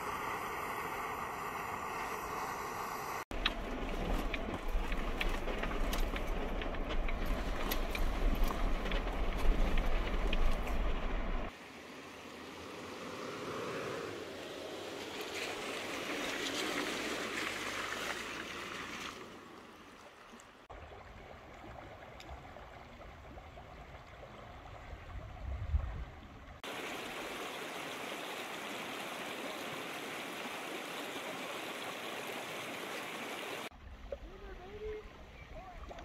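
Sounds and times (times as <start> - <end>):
mountain stream rushing: 0.0 - 23.1, 26.6 - 33.7
water splashing around tyres: 14.8 - 20.3
wind rumble on microphone: 21.1 - 26.6.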